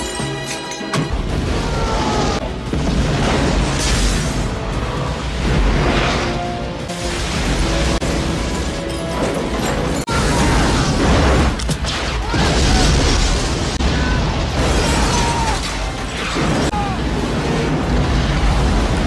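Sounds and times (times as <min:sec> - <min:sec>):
music: 0:00.0 - 0:10.8
crashing metal and explosions: 0:00.0 - 0:19.0.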